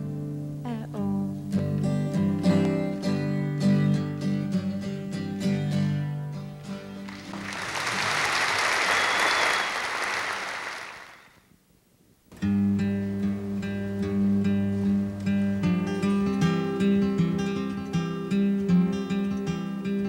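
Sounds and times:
acoustic guitar playing: 0.0s - 8.2s, 12.4s - 20.0s
audience applause: 7.0s - 11.4s.

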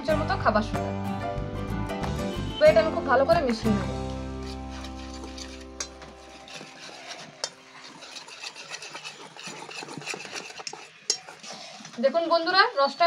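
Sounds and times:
whisk scraping steel bowl: 4.3s - 12.1s.

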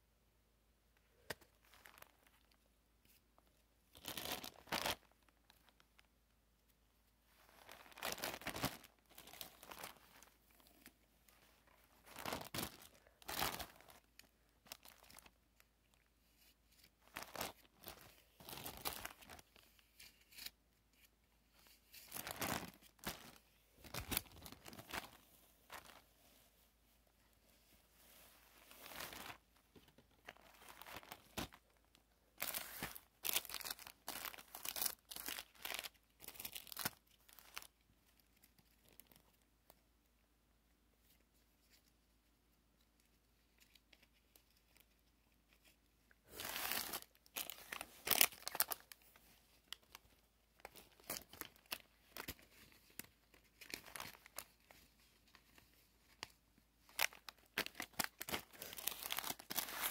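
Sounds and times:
plastic wrapping crinkling: 3.9s - 6.1s, 7.4s - 10.9s, 11.7s - 16.1s, 17.0s - 20.5s, 21.6s - 26.0s, 28.6s - 39.2s, 45.5s - 59.9s.

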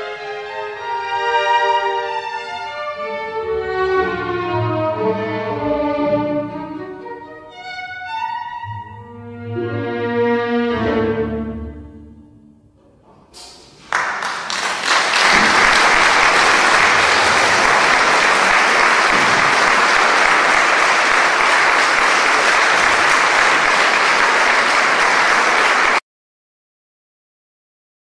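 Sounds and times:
audience applauding: 13.6s - 26.0s.

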